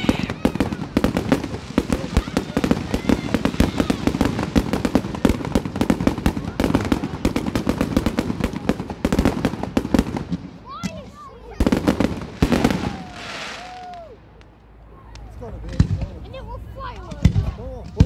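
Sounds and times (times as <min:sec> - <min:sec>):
fireworks bangs and pops: 0:00.0 - 0:14.5, 0:15.2 - 0:18.0.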